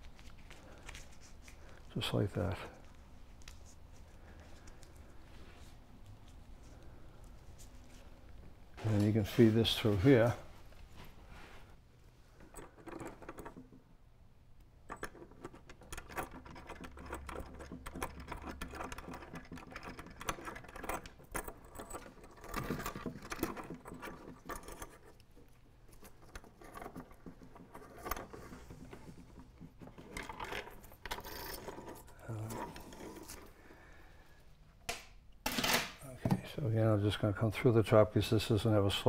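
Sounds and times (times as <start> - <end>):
chain rattling and scraping: 12.4 - 13.9, 14.8 - 33.5.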